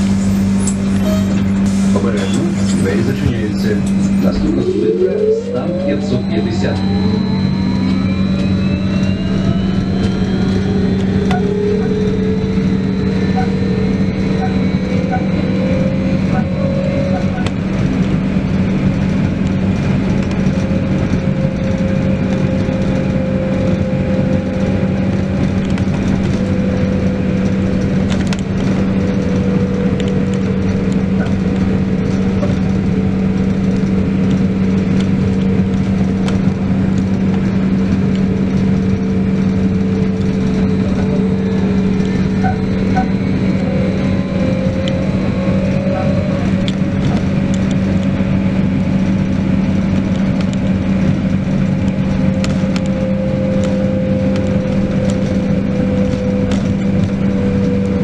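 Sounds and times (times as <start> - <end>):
electric hum: 0.0 - 58.0
road noise: 0.0 - 58.0
motor whine: 2.5 - 18.8.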